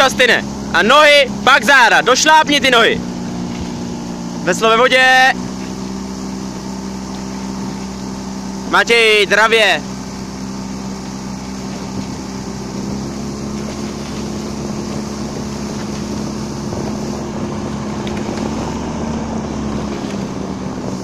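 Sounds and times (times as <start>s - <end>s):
outboard motor droning: 0.0s - 21.0s
wind noise: 11.2s - 21.0s.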